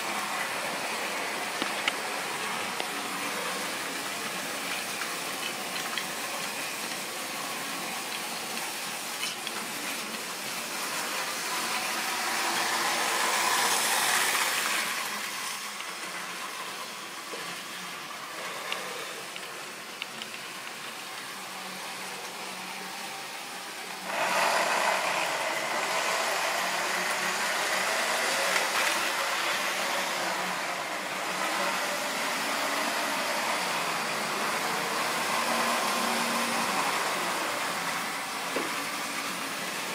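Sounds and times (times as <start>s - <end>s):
model train motors whirring: 0.0s - 39.9s.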